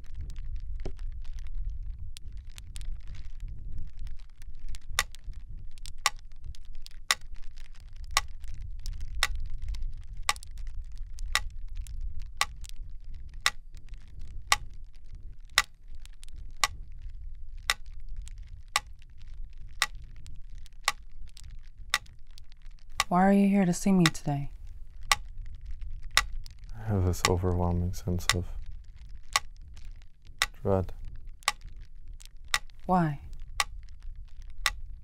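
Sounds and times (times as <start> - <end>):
low steady rumble: 0.0 - 35.0
metronome ticking: 24.0 - 24.4, 30.4 - 30.9, 32.5 - 32.8.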